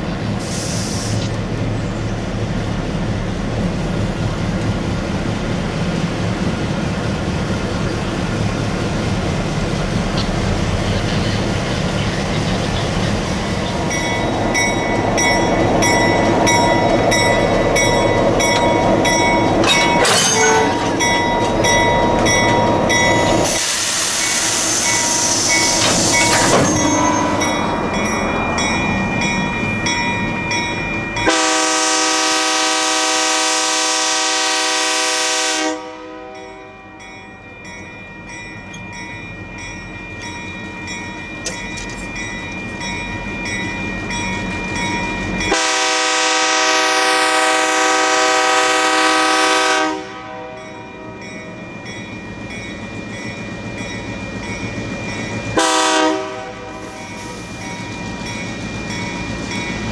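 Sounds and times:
diesel locomotive running: 0.0 - 59.9
loud air hiss: 0.4 - 1.3, 23.4 - 26.4, 56.7 - 57.9
locomotive bell ringing: 12.4 - 32.6, 36.3 - 46.4, 50.3 - 59.9
locomotive horn blast: 20.0 - 21.1, 31.2 - 36.8, 45.5 - 50.9, 55.6 - 57.4.

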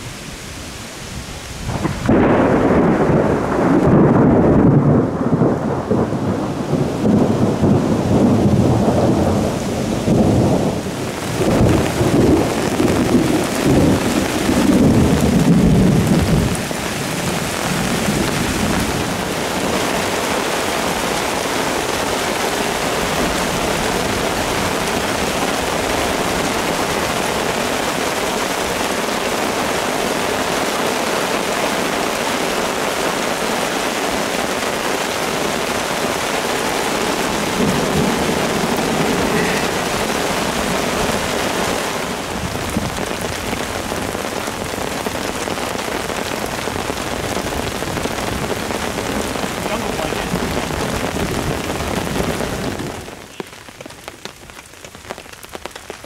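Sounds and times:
rain hissing: 0.0 - 56.0
rolling thunder: 1.6 - 29.6, 36.6 - 53.2.

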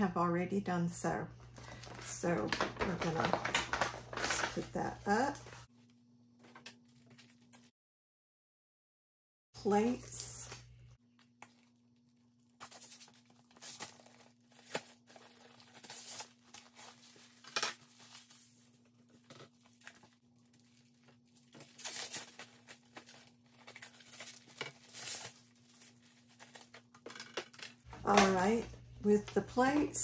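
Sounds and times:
plastic film crinkling: 1.6 - 4.7, 11.0 - 28.5.

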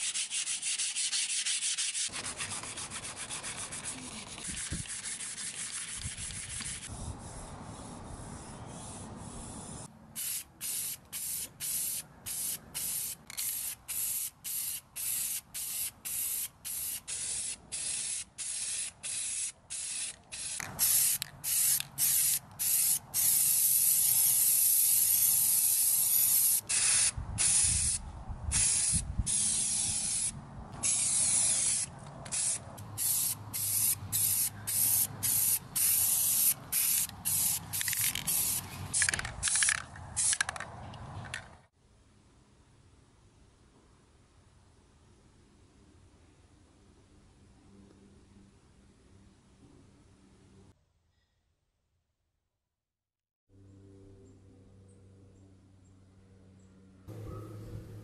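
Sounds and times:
spray paint can hissing: 0.0 - 7.0, 7.8 - 40.6.

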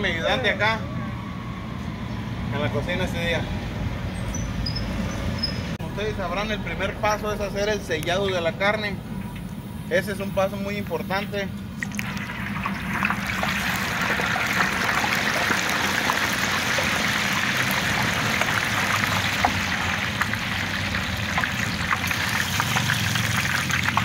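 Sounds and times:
crackles and pops of frying: 11.8 - 24.0
meat sizzling in hot fat: 12.0 - 24.0.

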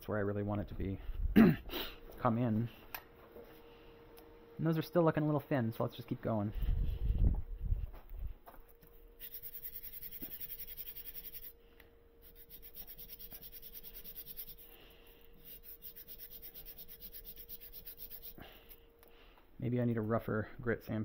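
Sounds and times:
metal plate scratching on sandpaper: 9.2 - 11.6, 12.2 - 14.8, 15.4 - 18.7.

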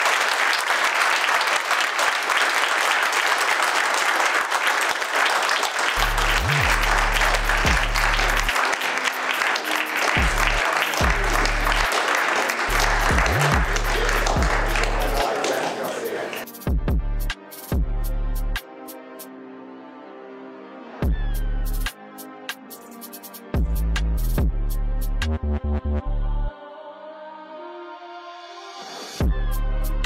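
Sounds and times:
crowd applauding: 0.0 - 16.5.

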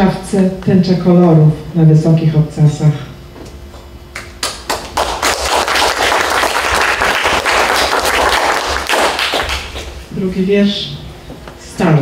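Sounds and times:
audience applauding: 4.2 - 9.9.

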